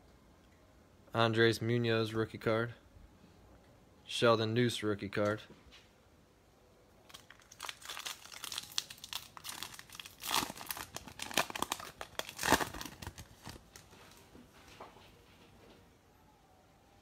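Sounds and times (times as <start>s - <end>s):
foil wrapper crinkling and tearing: 7.1s - 13.9s.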